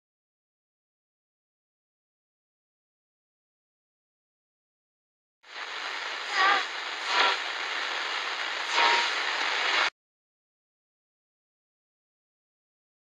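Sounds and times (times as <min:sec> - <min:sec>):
harsh static hiss: 0:05.4 - 0:09.9
wavering screech-like pitch: 0:06.3 - 0:07.4, 0:08.6 - 0:09.2.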